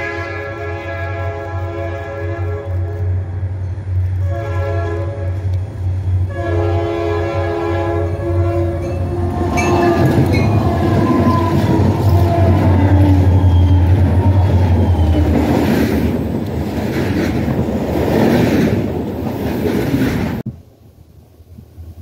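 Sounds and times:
locomotive air horn blasts: 0.0 - 3.3, 4.2 - 5.6, 6.2 - 14.5
diesel engines and wheels rumbling: 0.0 - 22.0
wheels clicking on rails: 8.7 - 20.5.

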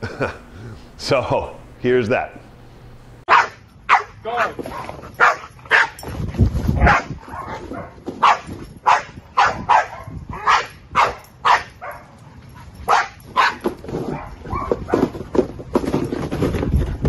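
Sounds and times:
dog barking sharply: 3.3 - 6.0, 6.8 - 12.0, 12.9 - 14.8.

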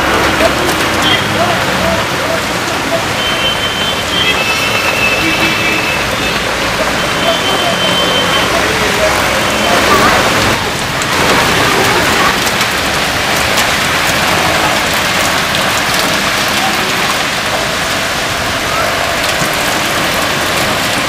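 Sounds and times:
heavy rain on road: 0.0 - 21.0.

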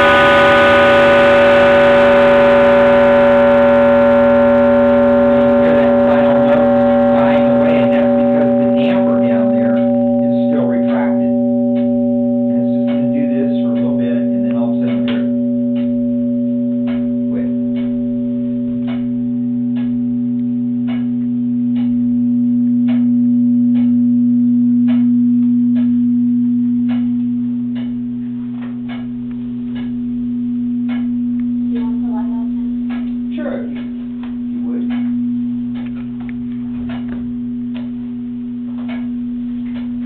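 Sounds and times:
deep chime ringing: 0.0 - 40.0
voices: 5.4 - 15.4.

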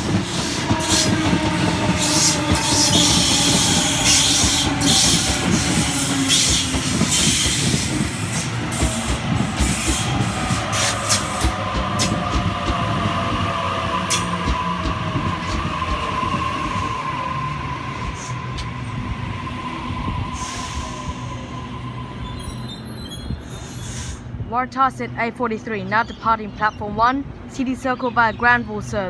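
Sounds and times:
electric train whine: 0.0 - 24.4.

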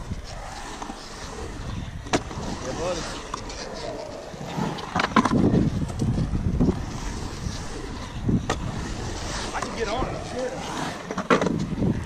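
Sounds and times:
wind buffeting microphone: 0.0 - 3.6, 4.6 - 12.0
skateboard wheels rolling on concrete: 0.0 - 12.0
skateboard clacks: 7.9 - 12.0.

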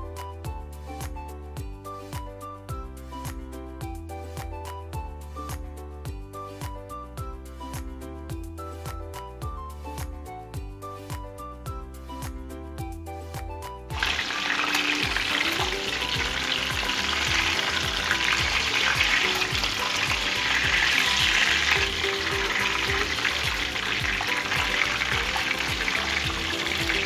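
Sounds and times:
fish sizzling in hot oil: 14.0 - 27.0.

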